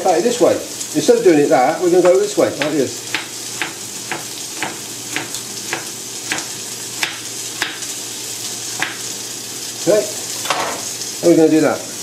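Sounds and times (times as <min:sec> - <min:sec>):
chicken sizzling in a pan: 0:00.0 - 0:12.0
knife tapping on chopping board: 0:02.0 - 0:07.9, 0:08.8 - 0:09.1.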